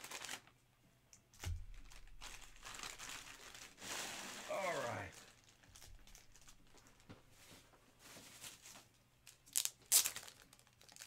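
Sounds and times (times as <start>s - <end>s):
loud plastic rips: 0.0s - 0.5s, 1.4s - 7.1s, 9.4s - 11.0s
plastic packaging crinkling: 0.0s - 0.6s, 1.3s - 11.0s.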